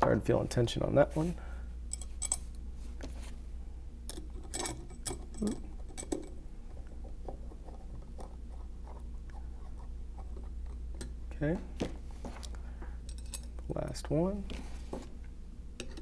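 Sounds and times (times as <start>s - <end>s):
steady low hum: 0.0s - 16.0s.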